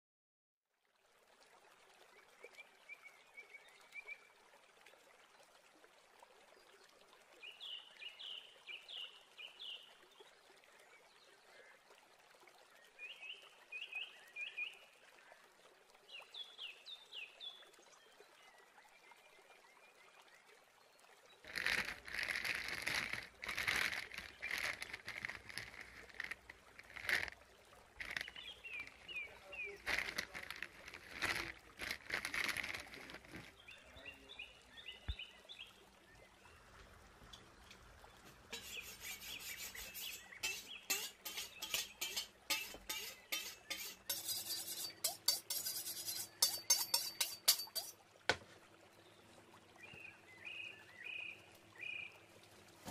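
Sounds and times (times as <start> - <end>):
plastic bag rustling: 21.5 - 27.4, 28.0 - 29.0, 29.8 - 33.5.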